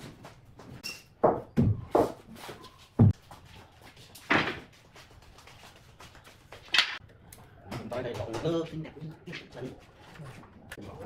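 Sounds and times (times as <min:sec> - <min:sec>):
wooden knocks and clunks: 0:01.2 - 0:02.2.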